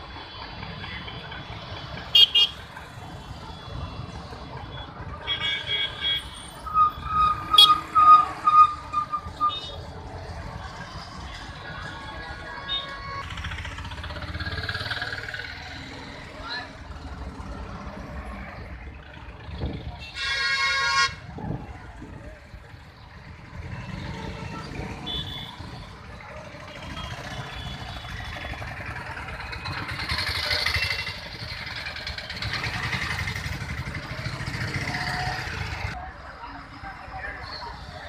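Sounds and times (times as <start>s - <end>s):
road traffic: 0.0s - 38.0s
vehicle horn honking: 7.4s - 8.8s, 20.0s - 21.2s.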